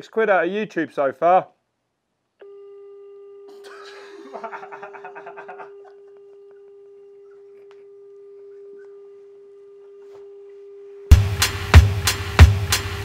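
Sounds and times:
man laughing: 3.5s - 6.7s.

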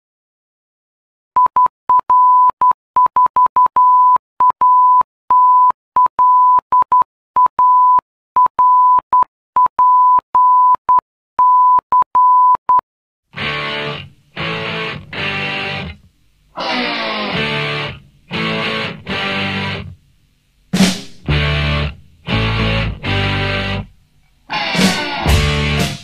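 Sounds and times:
morse code beeps: 1.4s - 12.8s.

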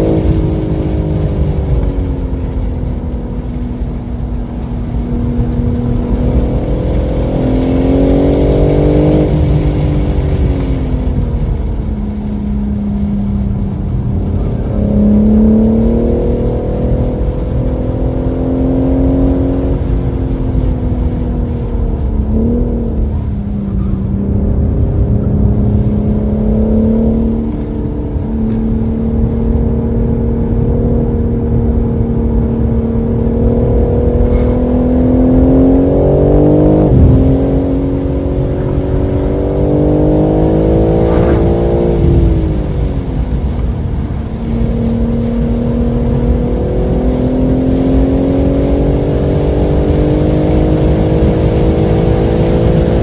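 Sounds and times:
car engine accelerating: 0.0s - 53.0s
low rumble: 19.7s - 47.1s.

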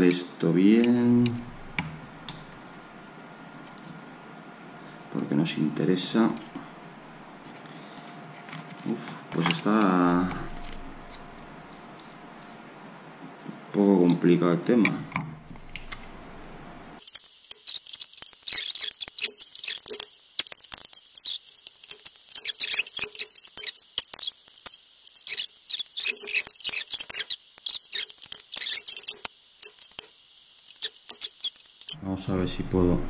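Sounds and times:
tools squeaking and clicking on plastic: 17.6s - 20.1s, 21.1s - 21.5s, 22.3s - 24.4s, 25.1s - 30.0s, 30.7s - 32.0s.

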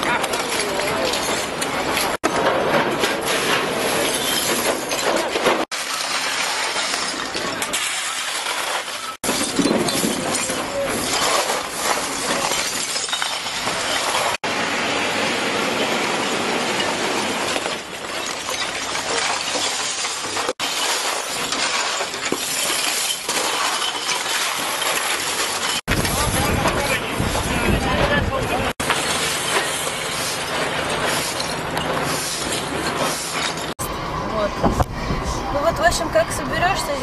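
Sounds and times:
glass bottles clinking and breaking: 0.0s - 14.5s, 15.5s - 33.8s
shovels scraping pavement: 0.0s - 14.5s, 15.8s - 33.8s
brooms sweeping glass: 3.2s - 14.4s, 15.6s - 26.3s, 28.8s - 33.8s
loader bucket scraping pavement: 19.8s - 33.9s.

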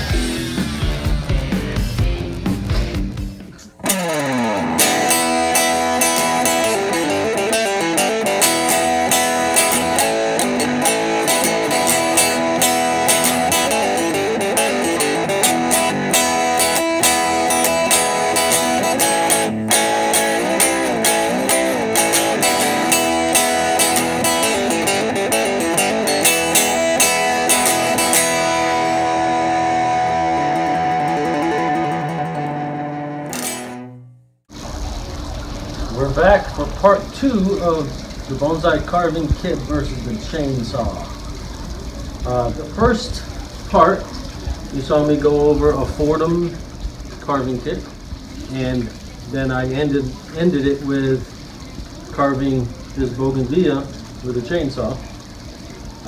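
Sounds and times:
instrumental guitar music: 0.0s - 56.0s.

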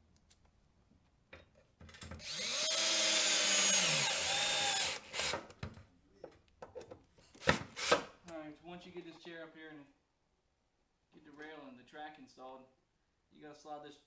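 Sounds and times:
cordless drill motor whining: 2.2s - 5.4s.

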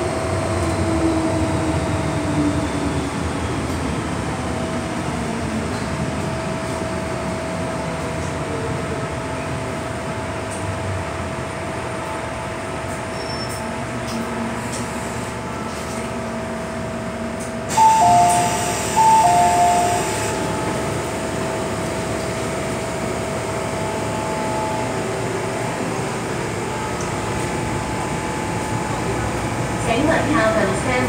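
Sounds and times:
train car hum: 0.0s - 31.0s
train doors opening: 12.7s - 29.6s
two-note door chime: 17.7s - 20.3s.

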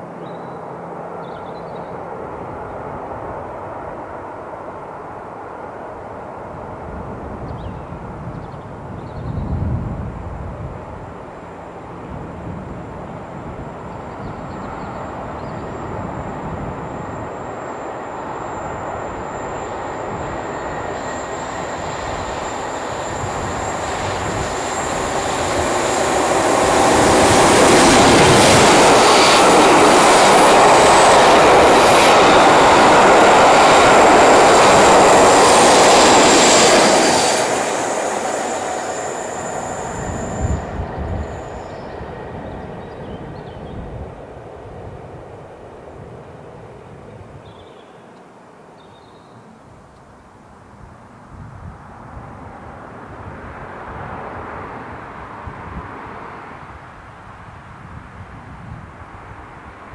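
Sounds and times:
diesel locomotives passing: 0.0s - 47.4s.

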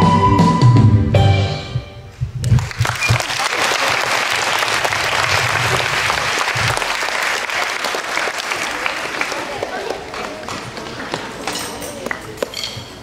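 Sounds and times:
audience applause: 2.5s - 12.2s.

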